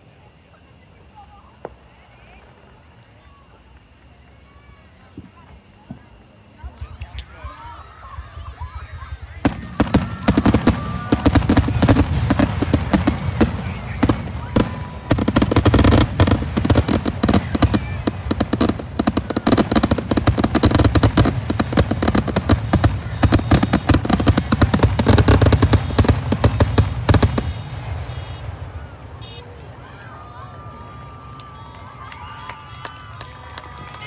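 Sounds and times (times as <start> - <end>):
fireworks bursting: 0.9 - 30.0.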